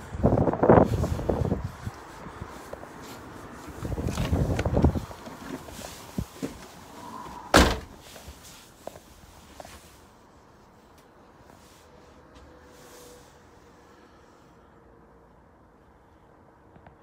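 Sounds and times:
door shutting with a bang: 7.5 - 8.0.

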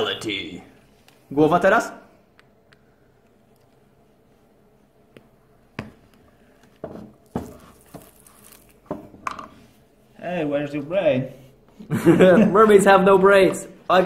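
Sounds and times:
hot knife sizzling through plastic: 6.8 - 9.0.

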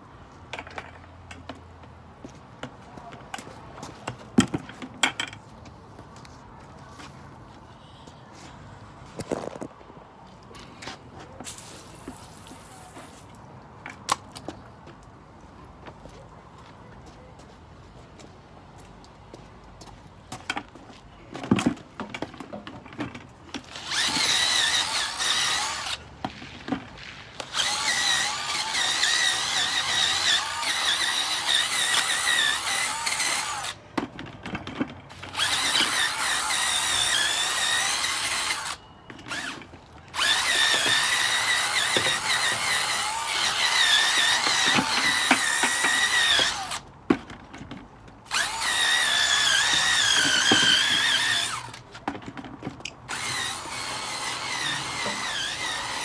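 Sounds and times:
power drill motor whine: 23.7 - 26.0, 27.5 - 33.8, 35.3 - 46.8, 48.3 - 51.8, 53.1 - 56.0.

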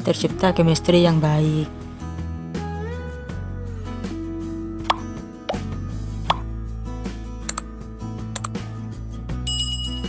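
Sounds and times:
background music with held tones: 0.0 - 10.0
pop sound effects: 4.8 - 6.5.

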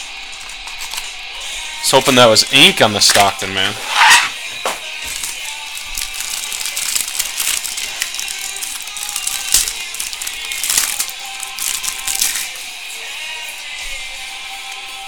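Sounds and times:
plastic wrapper crinkling: 0.0 - 1.1, 4.8 - 12.6.

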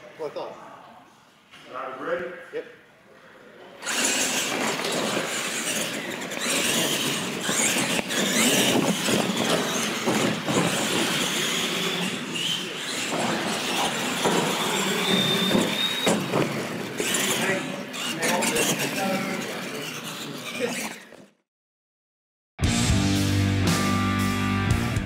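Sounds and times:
toy truck motors running: 3.8 - 21.4
tyres squealing on concrete: 3.8 - 21.4.

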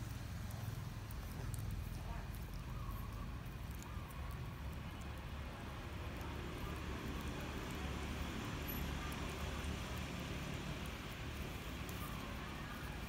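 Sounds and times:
low rumble of road traffic: 0.0 - 13.0.

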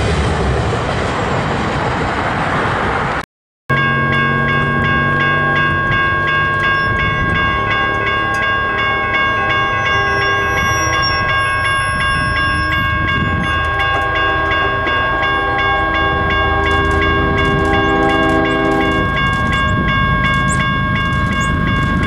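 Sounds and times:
low train rumble: 0.0 - 22.0
distant locomotive horn: 3.7 - 20.6
railroad crossing bell ringing: 3.7 - 22.0.

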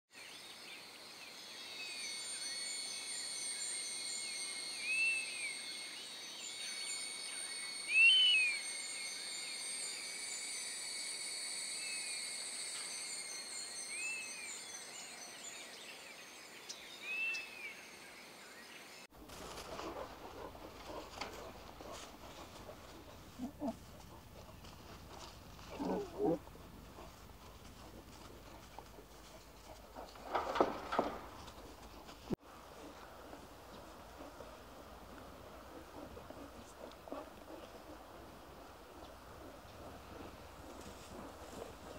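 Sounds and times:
insects trilling: 1.1 - 15.6, 19.4 - 31.1, 32.8 - 41.9
bird call: 7.9 - 8.6.

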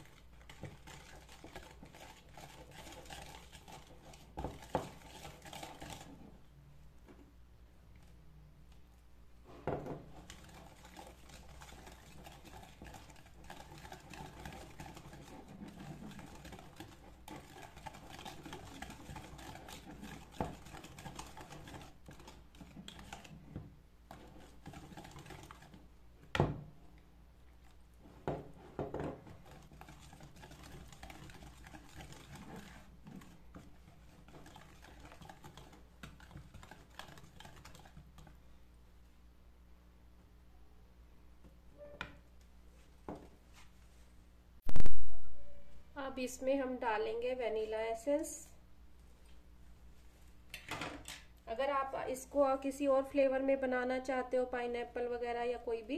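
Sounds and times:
wire whisk rattling in plastic bowl: 0.0 - 6.2, 10.1 - 23.4, 24.1 - 25.8, 29.0 - 38.3.

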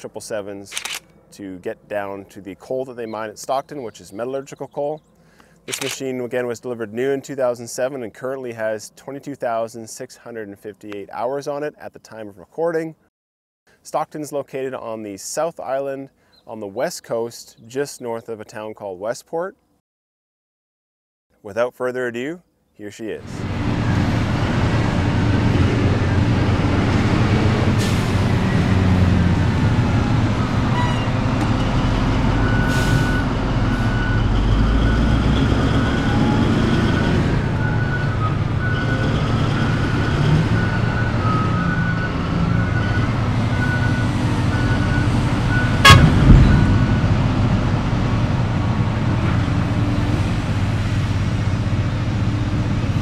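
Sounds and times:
diesel engine running under load: 23.3 - 53.0
repeating beeper: 44.6 - 47.0
heavy bang: 45.8 - 47.9.

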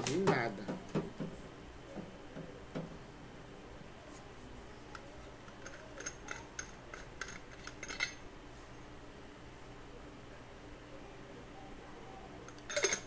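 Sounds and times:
light clinks: 4.9 - 8.2, 12.5 - 13.0.

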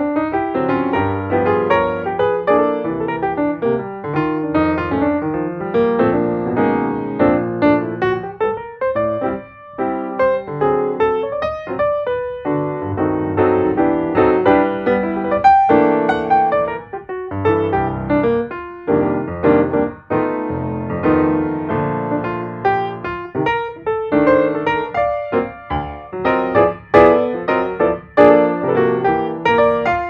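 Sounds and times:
piano music: 0.0 - 30.0.

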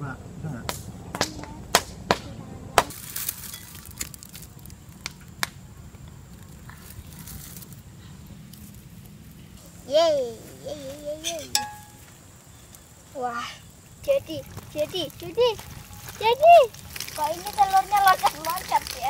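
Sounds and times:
dry twigs snapping: 2.8 - 5.6, 15.8 - 19.0
rustle of grass: 2.9 - 5.1, 6.2 - 19.0.

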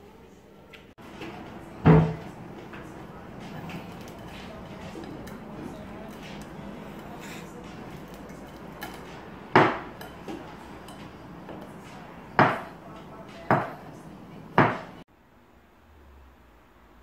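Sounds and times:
knife clacking on ceramic plate: 3.8 - 11.7.

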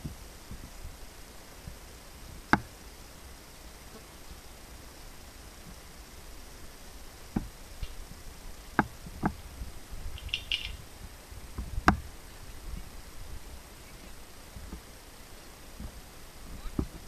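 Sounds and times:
high chirping: 10.1 - 10.9.

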